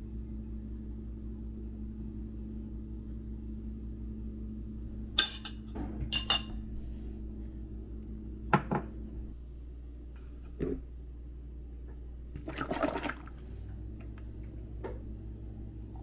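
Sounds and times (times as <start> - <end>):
steady low hum: 0.0 - 16.0
dishes clinking on counter: 5.2 - 6.6.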